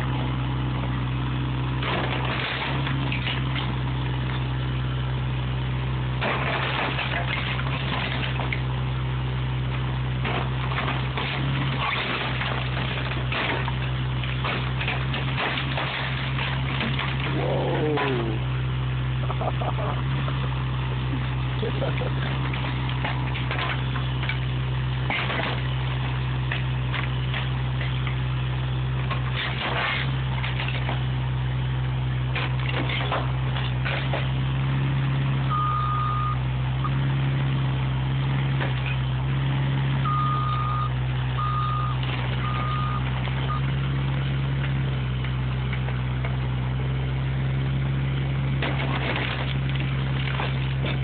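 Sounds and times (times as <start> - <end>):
excavator diesel engine running: 0.0 - 51.0
wood crunching and cracking: 6.2 - 8.8, 9.7 - 18.5, 19.2 - 35.0, 42.0 - 51.0
warning beeper: 35.5 - 36.4, 40.1 - 43.7.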